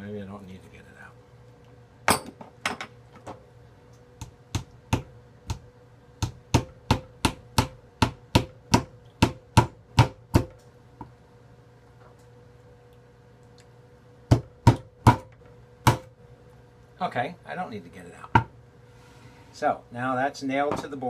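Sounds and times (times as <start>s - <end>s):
hammer striking nail into wood: 6.2s - 10.5s, 14.3s - 16.1s.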